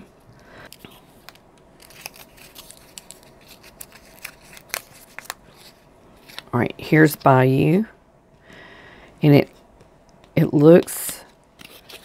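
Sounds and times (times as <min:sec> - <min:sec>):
paper wrapper crinkling: 0:00.7 - 0:06.6, 0:11.6 - 0:12.0.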